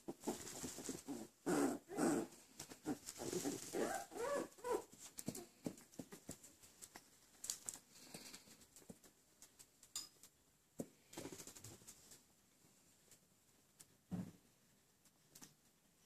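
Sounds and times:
puppies whining: 0:02.9 - 0:04.9.

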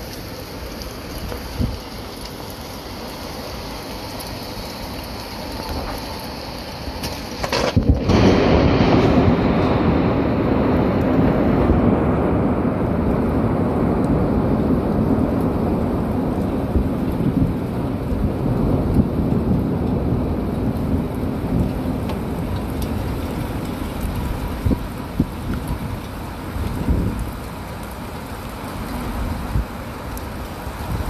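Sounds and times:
steady rain: 0:00.0 - 0:31.0
thunder rumbling: 0:05.5 - 0:27.5.

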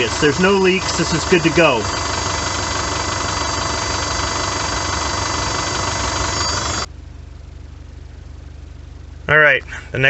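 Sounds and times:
high whine of fuel pump: 0:00.0 - 0:09.0
diesel engine idling: 0:00.0 - 0:10.0.

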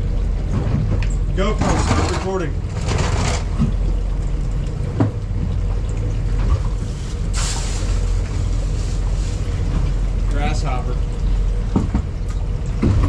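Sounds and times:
boat engine rumble: 0:00.0 - 0:13.0
water washing against hull: 0:00.0 - 0:13.0.

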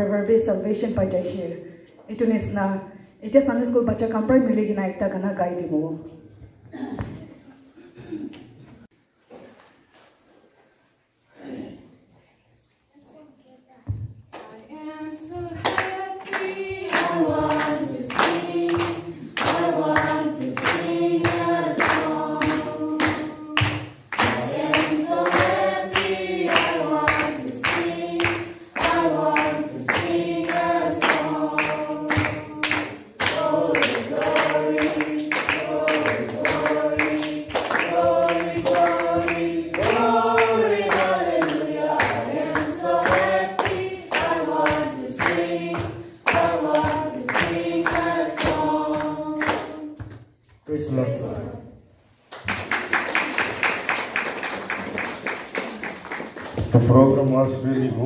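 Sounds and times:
group singing a hymn: 0:14.7 - 0:50.2
hand clapping: 0:15.6 - 0:50.5, 0:52.3 - 0:56.9.

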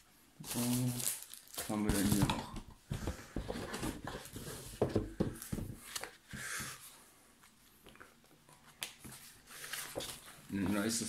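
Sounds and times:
items knocking and clicking in a box: 0:01.6 - 0:05.8
book pages rustling: 0:03.0 - 0:11.0.

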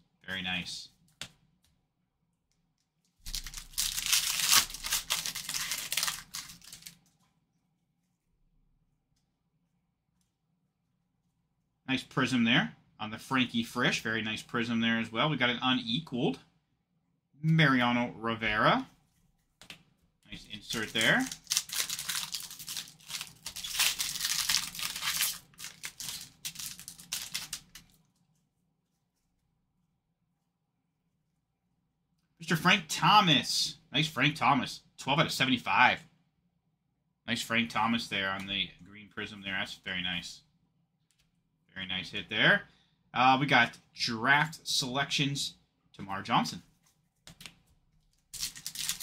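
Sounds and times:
card pack wrapper tearing: 0:03.2 - 0:07.0, 0:20.7 - 0:28.0, 0:48.2 - 0:49.0.

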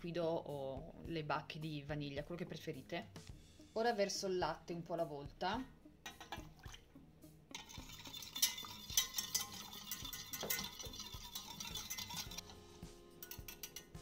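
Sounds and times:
whisk scraping metal saucepan: 0:07.5 - 0:14.0.

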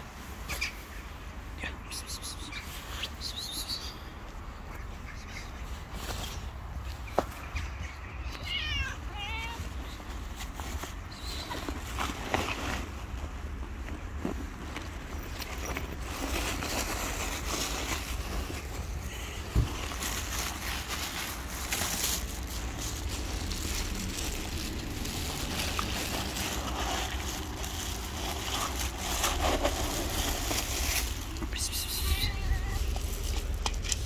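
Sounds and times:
plastic bag rustling: 0:08.9 - 0:34.0.

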